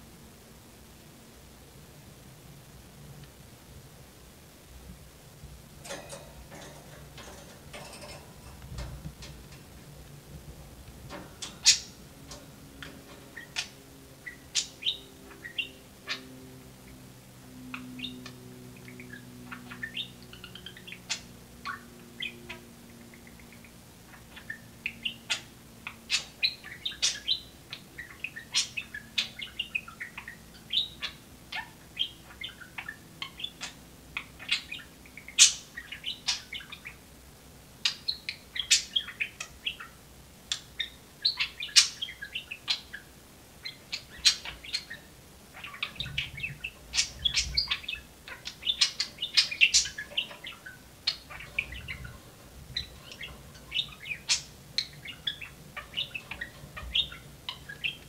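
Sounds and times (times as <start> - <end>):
budgerigars chirping: 11.0 - 37.0, 37.8 - 58.0.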